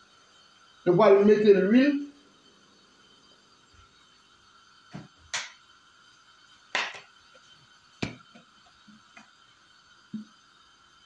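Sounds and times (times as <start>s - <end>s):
faint steady hum: 0.0s - 11.0s
cookware knocking and clinking: 6.8s - 7.1s.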